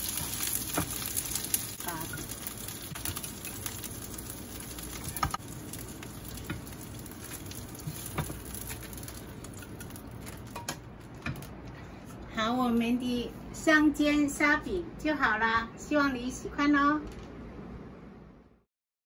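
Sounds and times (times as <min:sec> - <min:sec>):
oil sizzling in a frying pan: 0:00.0 - 0:10.8.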